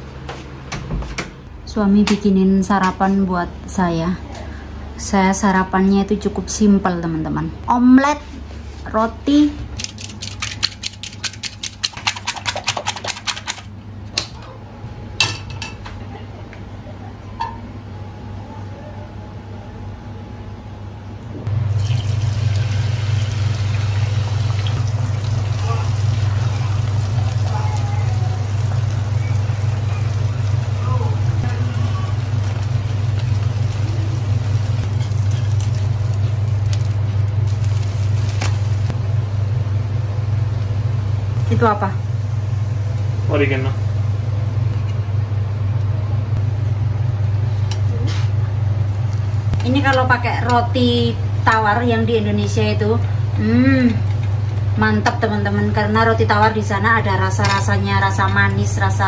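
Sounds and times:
whisk beating eggs in steel bowl: 10.1s - 13.6s
low hum: 16.9s - 59.0s.

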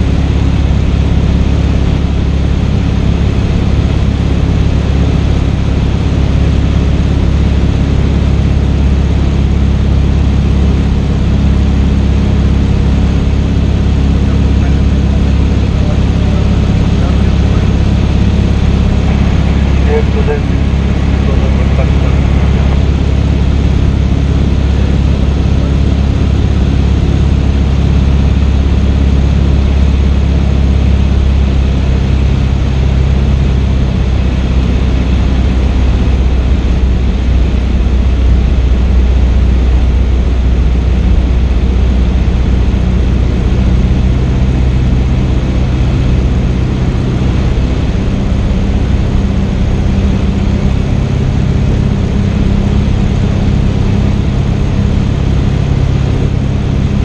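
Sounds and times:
propeller plane engine drone: 0.0s - 57.0s
airflow noise: 12.9s - 32.3s.

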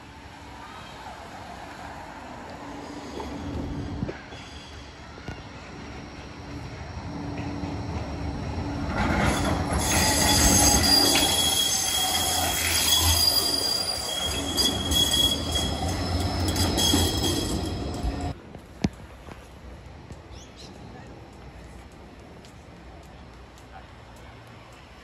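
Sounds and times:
tram passing: 0.0s - 25.0s
high whining tones: 6.4s - 18.3s.

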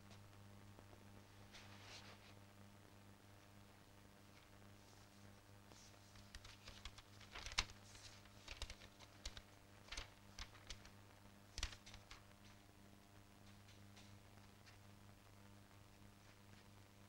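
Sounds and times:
faint steady hum: 0.0s - 17.0s
paper pages rustling: 5.0s - 12.6s.

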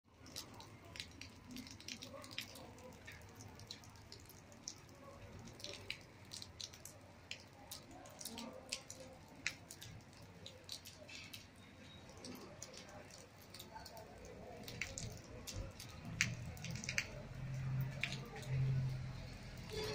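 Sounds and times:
light rain dripping on concrete: 0.1s - 19.9s.

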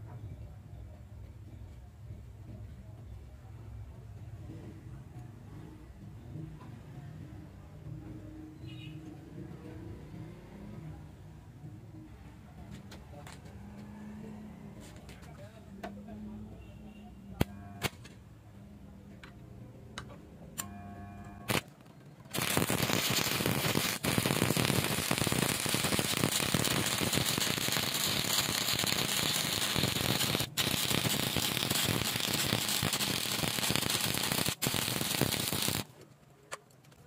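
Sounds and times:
welding arc crackling and sizzling: 21.5s - 21.7s, 22.3s - 35.9s
welding rod scratching on steel: 22.3s - 35.9s.

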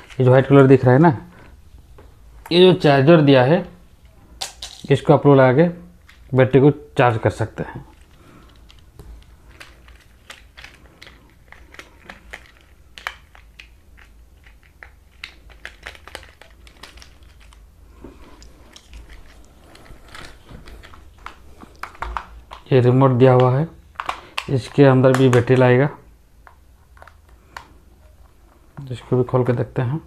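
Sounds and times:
plastic toy parts clicking: 8.0s - 17.6s.

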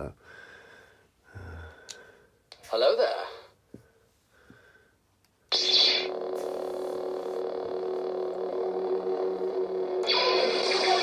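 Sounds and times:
steady electric hum: 5.4s - 11.0s
lightsaber ignition burst: 5.5s - 7.4s, 10.0s - 11.0s
voice clip: 10.0s - 11.0s.

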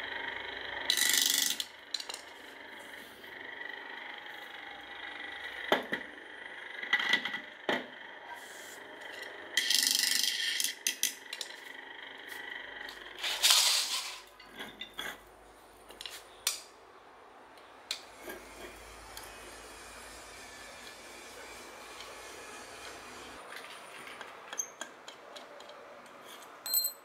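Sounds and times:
motor scraping on concrete: 8.2s - 15.3s, 18.0s - 24.2s
metallic clinks and knocks: 26.4s - 27.0s.

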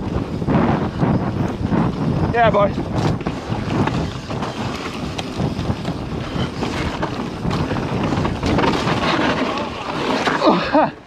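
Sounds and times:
bike tyres rushing on dirt: 0.0s - 11.0s
wind buffeting microphone: 0.0s - 11.0s
bike clicks and knocks: 2.9s - 10.8s.

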